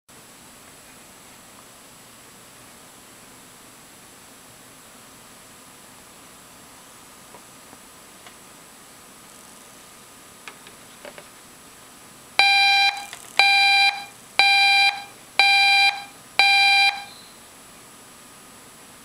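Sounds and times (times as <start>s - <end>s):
electronic warning beeps: 12.4s - 17.4s.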